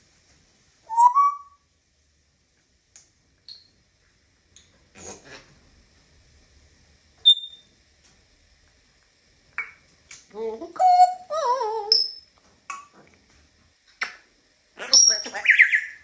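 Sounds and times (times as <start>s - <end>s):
parrot whistle: 0.9s - 1.6s, 7.2s - 7.6s
parrot talking: 10.4s - 12.2s, 14.8s - 16.0s.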